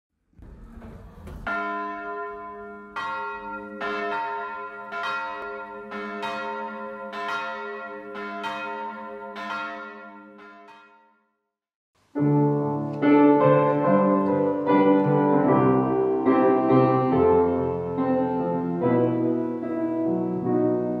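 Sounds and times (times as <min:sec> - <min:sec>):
low rumble: 0:00.3 - 0:01.6
church bells ringing: 0:01.4 - 0:11.3, 0:12.3 - 0:21.0.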